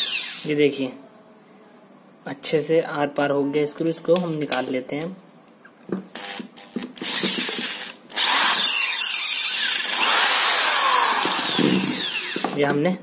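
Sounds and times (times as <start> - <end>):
electric drill running: 0.0 - 0.5, 6.1 - 12.6.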